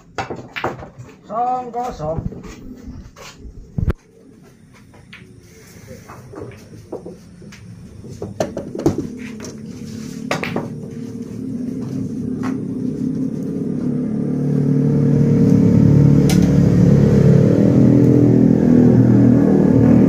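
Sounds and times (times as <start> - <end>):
billiard balls clicking: 0.0 - 1.2
engine running: 2.4 - 20.0.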